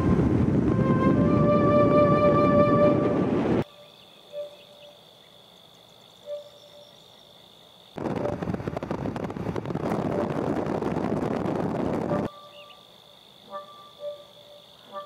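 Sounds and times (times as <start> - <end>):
crackling rushing roar: 0.0 - 3.6, 8.0 - 12.3.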